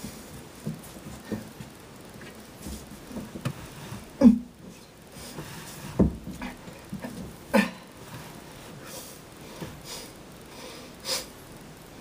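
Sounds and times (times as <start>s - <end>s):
man grunting with effort: 4.2s - 4.6s, 7.5s - 7.9s.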